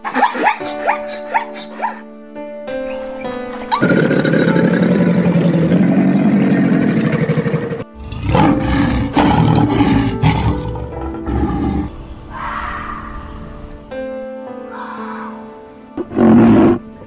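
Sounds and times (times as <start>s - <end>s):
crocodile growling: 3.8s - 13.2s
lion roaring: 3.8s - 13.5s, 16.0s - 16.8s.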